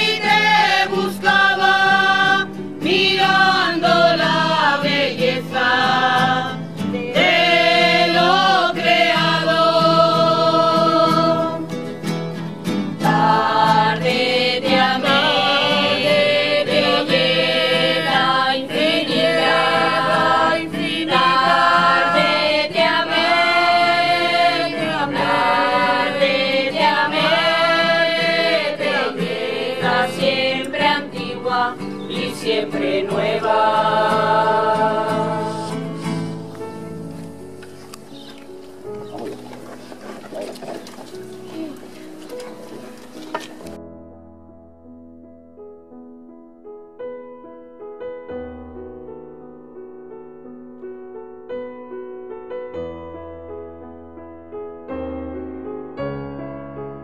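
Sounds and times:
crowd singing a hymn: 0:00.0 - 0:43.8
acoustic guitar: 0:00.0 - 0:57.0.

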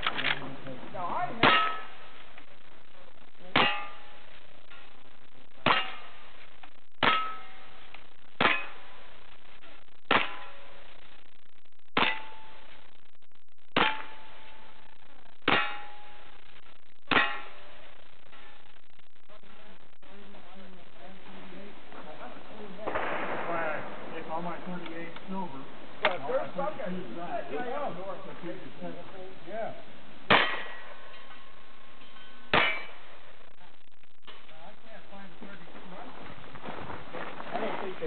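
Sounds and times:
steel target ringing: 0:01.4 - 0:02.2, 0:03.5 - 0:04.3, 0:05.6 - 0:06.3, 0:07.0 - 0:07.8, 0:08.4 - 0:09.0, 0:12.0 - 0:12.7, 0:13.8 - 0:14.8, 0:15.4 - 0:16.4, 0:17.1 - 0:17.7, 0:30.3 - 0:33.1
rifle shots: 0:10.1 - 0:10.8, 0:22.8 - 0:25.2.

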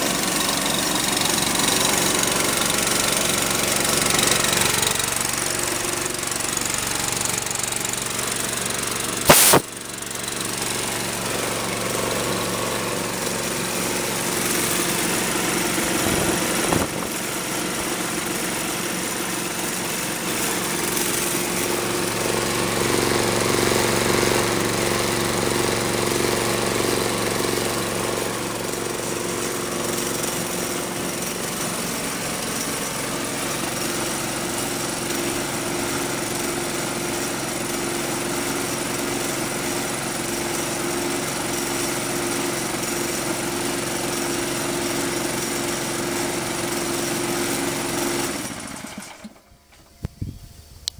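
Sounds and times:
air compressor engine running: 0:00.0 - 0:50.9
sharp knock: 0:09.3 - 0:09.7.

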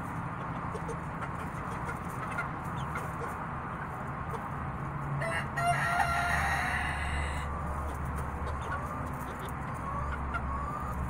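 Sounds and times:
chickens clucking and chirping: 0:00.0 - 0:11.0
rooster crowing: 0:05.2 - 0:07.7.

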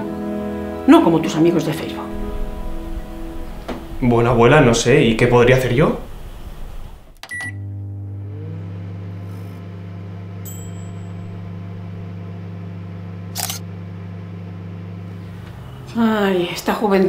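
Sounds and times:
low synthesizer drone: 0:00.0 - 0:16.5
faint high glint: 0:02.0 - 0:07.2.

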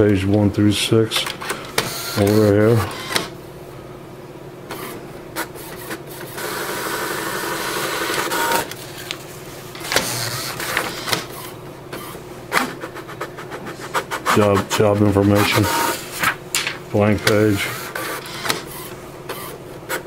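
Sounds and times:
printer motor whirring: 0:01.2 - 0:03.4, 0:04.7 - 0:12.7, 0:14.2 - 0:16.4, 0:17.0 - 0:20.0.

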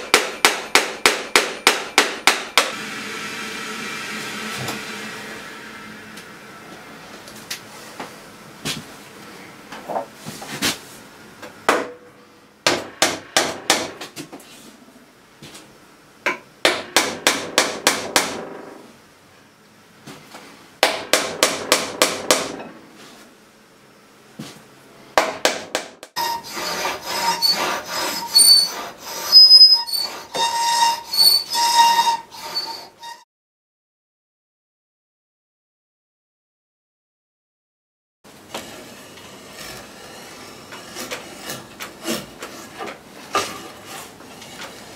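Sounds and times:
marking gauge scraping board: 0:26.2 - 0:33.2, 0:38.5 - 0:44.9.

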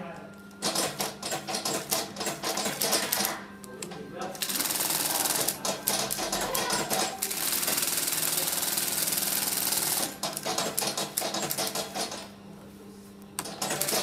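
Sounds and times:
steady motor hum: 0:00.0 - 0:14.0.

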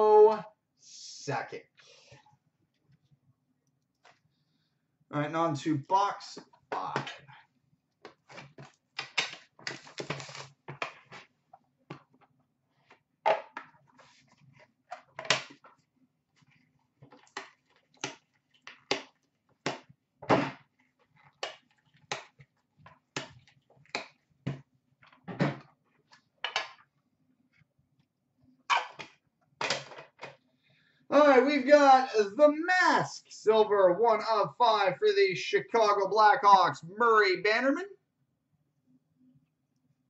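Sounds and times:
trading cards scraping and rustling: 0:09.7 - 0:11.3.

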